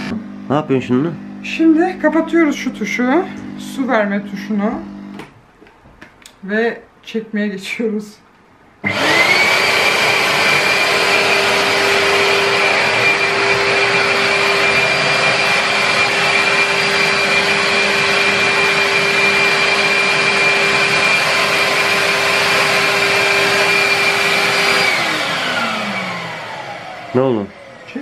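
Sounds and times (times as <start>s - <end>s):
suction motor whining: 8.8s - 28.0s.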